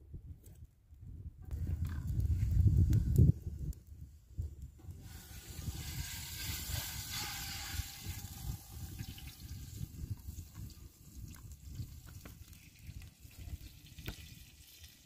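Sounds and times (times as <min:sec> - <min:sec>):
oil hissing in hot pot: 0:05.0 - 0:10.8.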